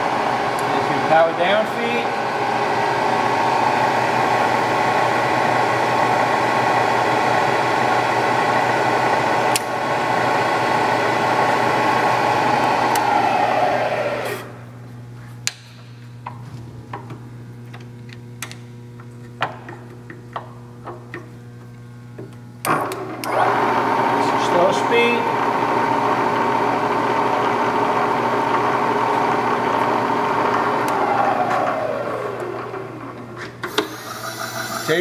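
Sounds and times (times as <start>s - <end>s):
milling machine running: 0.0s - 14.6s, 22.6s - 35.0s.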